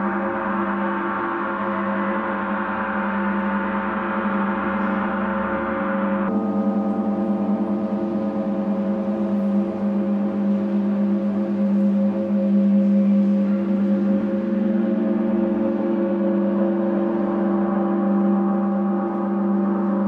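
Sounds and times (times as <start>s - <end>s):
gong resonating: 0.0s - 20.0s
low gong hum: 0.0s - 20.0s.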